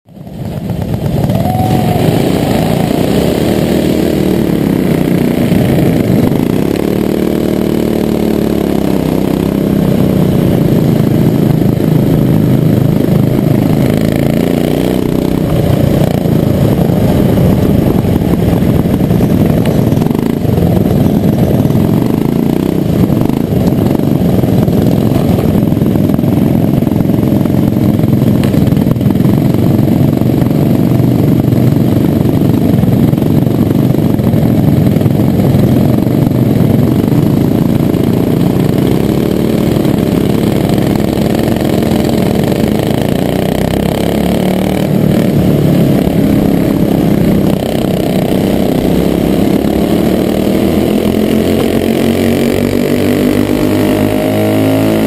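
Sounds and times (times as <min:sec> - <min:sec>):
racing kart engine revving: 0:00.2 - 0:55.0.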